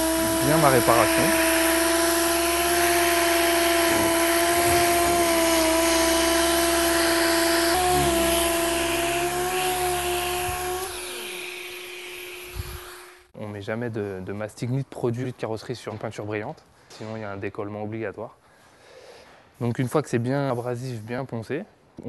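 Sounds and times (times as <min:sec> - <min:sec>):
orbital sander hum and hiss: 0:00.0 - 0:13.3.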